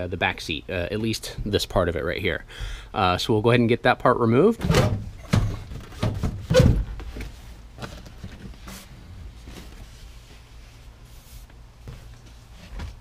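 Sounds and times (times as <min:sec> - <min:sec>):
faint knocks and rustles: 0:05.1 - 0:13.0.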